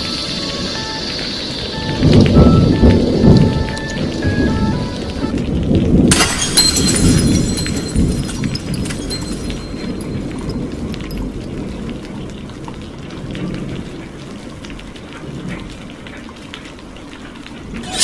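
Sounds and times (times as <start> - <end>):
rain patter: 0.0 - 18.0
thunder rumble: 0.0 - 18.0.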